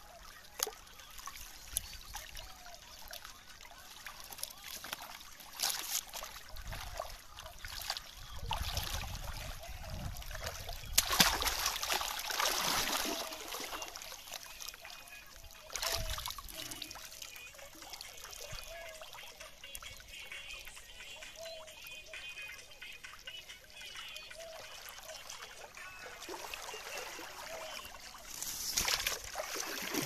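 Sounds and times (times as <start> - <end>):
water splashing and trickling: 0.0 - 30.0.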